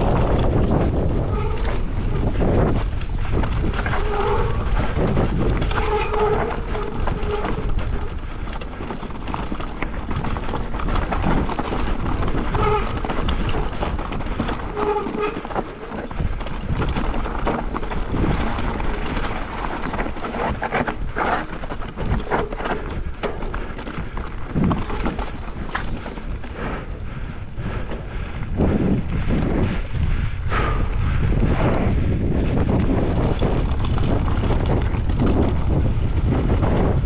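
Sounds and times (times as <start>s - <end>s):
bike rattling: 0.0s - 37.0s
bike tyres crunching over rocks: 0.0s - 37.0s
low rumble: 24.5s - 37.0s.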